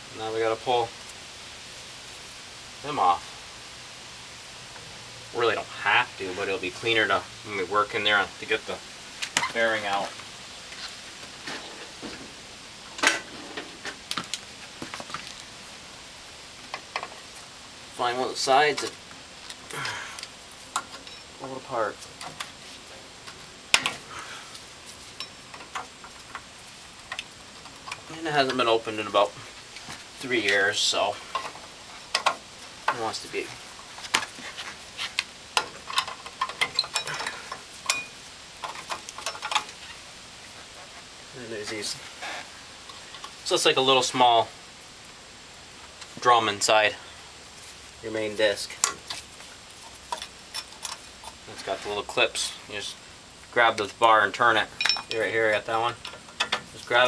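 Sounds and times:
metal brake parts clinking: 35.8s - 39.7s, 54.7s - 55.3s.

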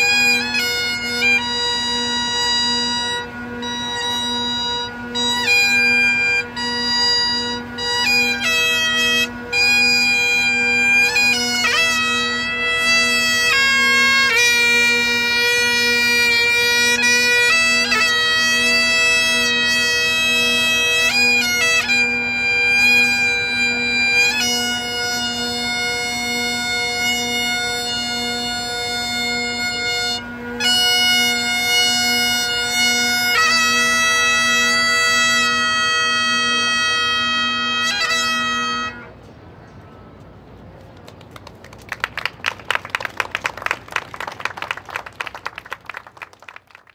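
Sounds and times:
bagpipes playing slow melody: 0.0s - 39.2s.

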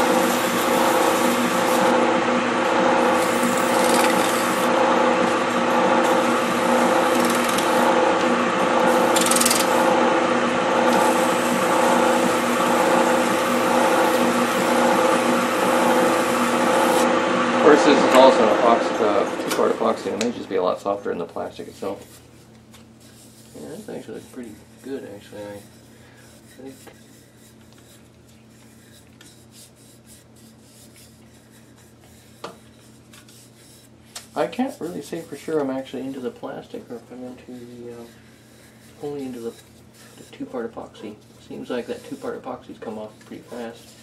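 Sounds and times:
sandpaper rasping on plastic: 0.0s - 2.0s, 3.1s - 4.7s, 8.8s - 9.9s, 23.0s - 36.4s, 37.0s - 44.0s
lathe motor hum: 0.0s - 20.6s
steady low hum: 0.0s - 44.0s.

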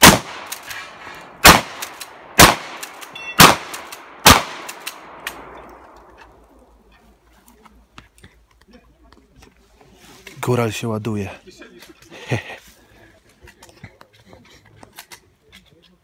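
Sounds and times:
shotgun blasts with echo: 0.0s - 5.6s.

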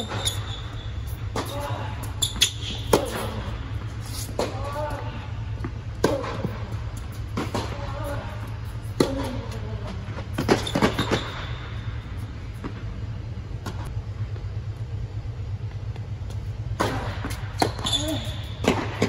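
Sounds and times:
steady low hum: 0.0s - 19.0s
tennis racket strikes: 1.1s - 3.5s, 8.8s - 9.6s
tennis ball bounces: 8.9s - 9.7s.

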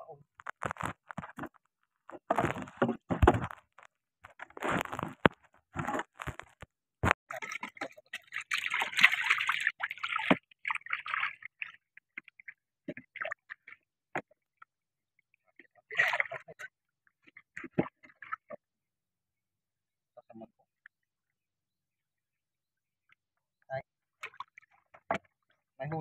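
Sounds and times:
water splashing around boat: 4.4s - 14.4s, 15.7s - 18.6s.

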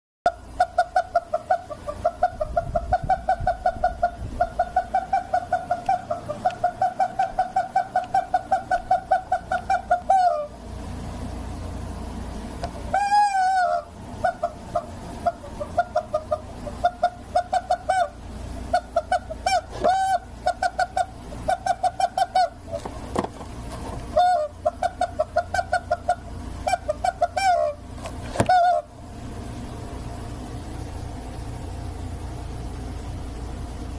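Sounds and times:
rubber chicken toy squeaking: 12.9s - 18.2s, 18.8s - 22.8s, 24.2s - 27.8s, 28.4s - 28.9s.

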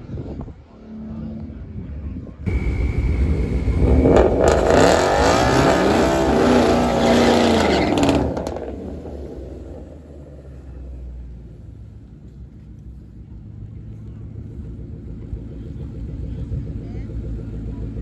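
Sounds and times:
low rumble: 0.0s - 18.0s
engine revving: 2.4s - 11.5s.

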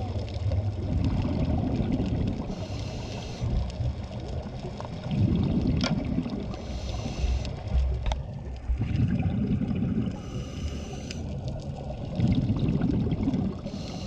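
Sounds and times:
scuba regulator breathing: 2.5s - 3.7s, 6.5s - 8.0s, 9.9s - 11.4s, 13.5s - 14.0s.

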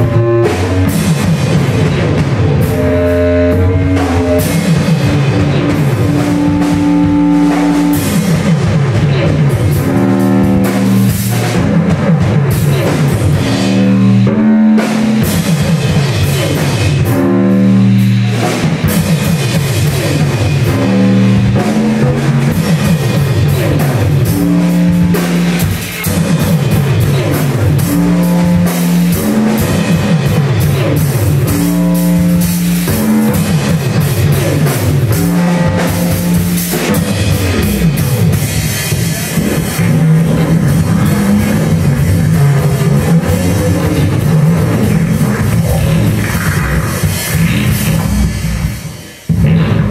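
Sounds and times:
drum kit pounding: 0.0s - 49.9s
guitar: 0.0s - 49.9s
low bass notes: 0.0s - 49.9s.

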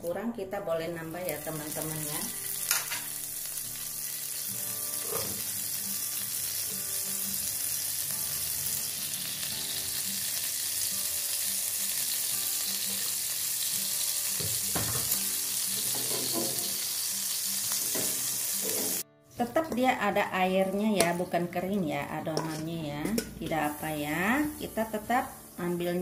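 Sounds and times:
oil sizzling in a wok: 1.0s - 19.0s, 20.0s - 26.0s.

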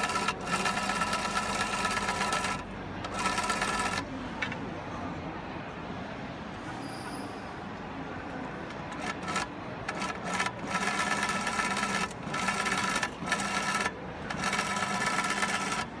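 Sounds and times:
sewing machine stitching: 0.0s - 4.0s, 8.9s - 15.9s.

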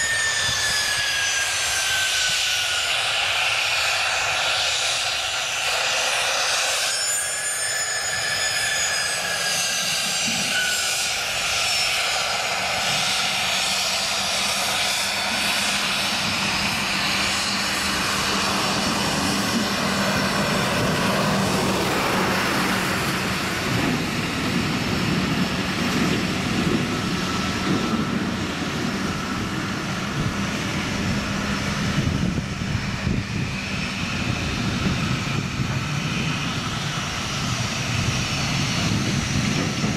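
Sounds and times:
jet engine whine and rumble: 0.0s - 39.9s.

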